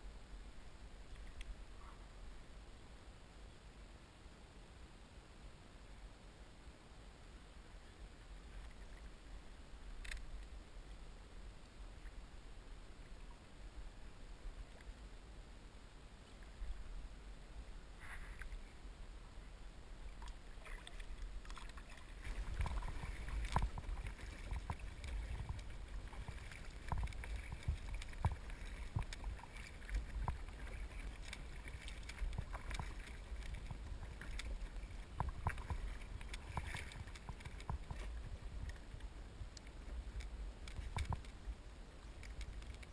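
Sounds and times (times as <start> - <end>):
clicks and drips: 20.2 - 38.8, 39.6 - 41.4
paddle splashing in water: 20.2 - 39.0.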